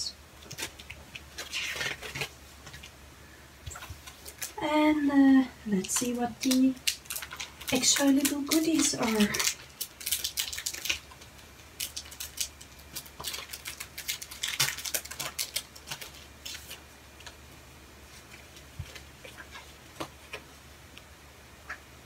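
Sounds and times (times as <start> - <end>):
computer fan hum: 0.0 - 22.0
paper cards rustling: 0.4 - 2.9, 5.8 - 17.4
plastic sleeve crinkling: 0.4 - 3.0, 3.7 - 4.6, 5.7 - 17.4.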